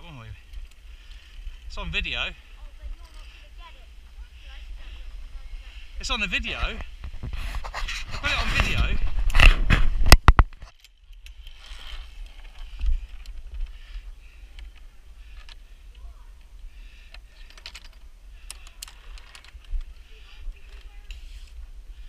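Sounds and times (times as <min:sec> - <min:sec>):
light clicks and rustles: 0:02.8 - 0:03.7, 0:17.1 - 0:21.6.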